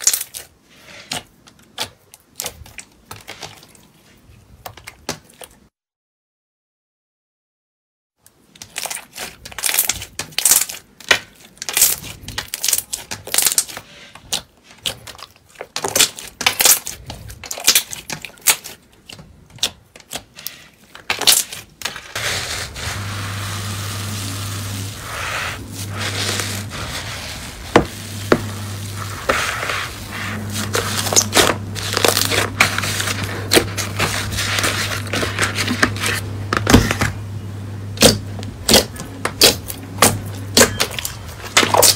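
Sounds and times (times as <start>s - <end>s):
slime hiss: 22.2s - 33.2s
low hum: 22.2s - 41.1s.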